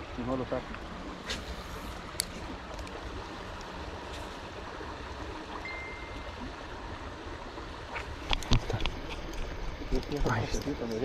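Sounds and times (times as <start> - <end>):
flowing water rushing: 0.0 - 11.0
high steady tone: 5.6 - 6.4.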